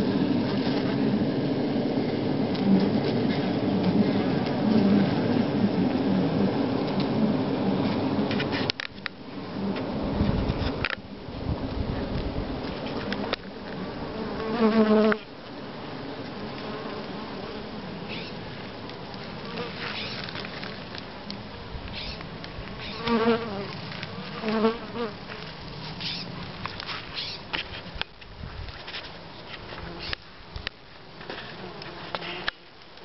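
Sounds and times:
bee colony buzzing: 0.0s - 8.6s, 12.0s - 25.4s
bee flying past buzzing: 12.7s - 15.3s, 19.4s - 20.4s, 22.8s - 25.2s, 31.5s - 32.6s.

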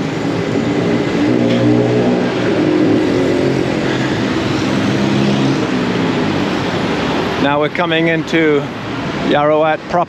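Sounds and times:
general traffic noise: 0.0s - 10.0s
vehicle engines humming close by: 0.0s - 10.0s.

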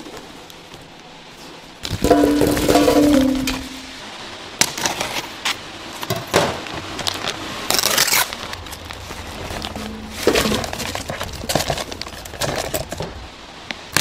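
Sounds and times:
water splashing into metal pan: 2.0s - 4.0s
plastic packaging rustling: 7.1s - 13.2s.

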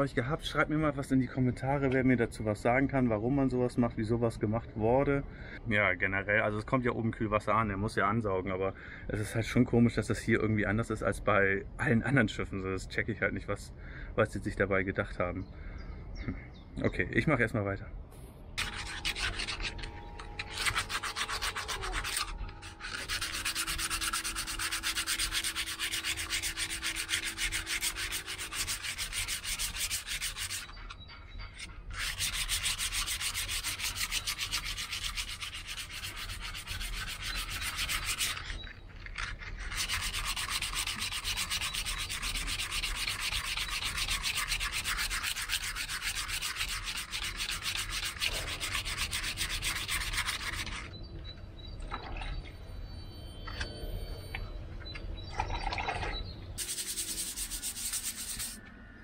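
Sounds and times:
hand sanding metal: 18.6s - 50.9s, 56.6s - 58.6s.

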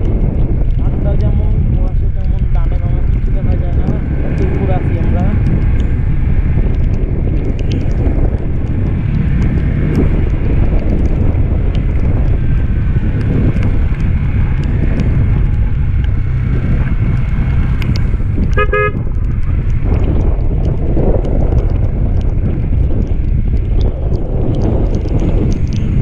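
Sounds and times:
motorcycle engine running: 0.0s - 26.0s
wind rushing on microphone: 0.0s - 26.0s.

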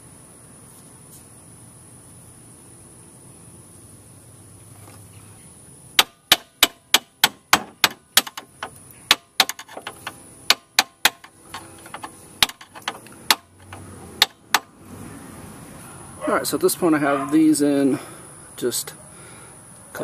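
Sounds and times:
sharp knocks and clicks: 6.0s - 14.7s.

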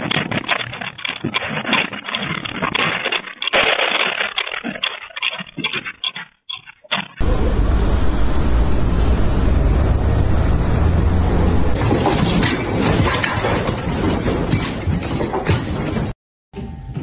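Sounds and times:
furniture and objects rattling: 11.8s - 16.2s.

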